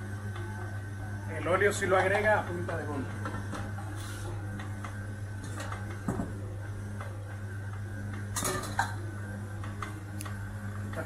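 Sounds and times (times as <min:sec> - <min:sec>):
utensils clinking on steel counter: 0:08.4 - 0:09.0.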